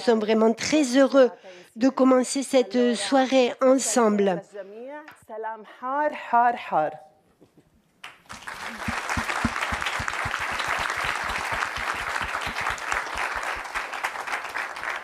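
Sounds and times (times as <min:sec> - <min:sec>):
audience applause: 0:08.1 - 0:15.0.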